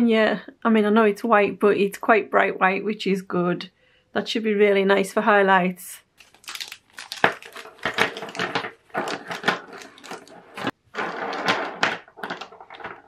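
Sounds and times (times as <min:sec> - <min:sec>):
foil packaging crinkling: 0:06.2 - 0:10.8.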